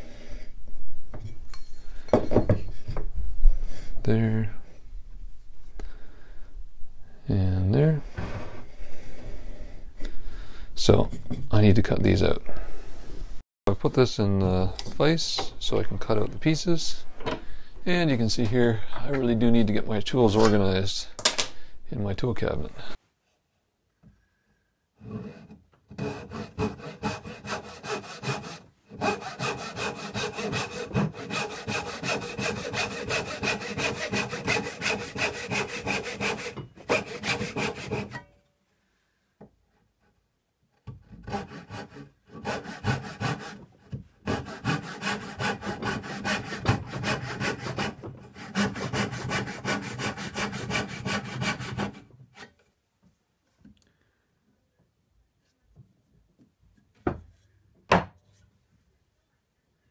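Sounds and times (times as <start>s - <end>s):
hand saw cutting wood: 25.0s - 38.2s, 41.1s - 52.6s.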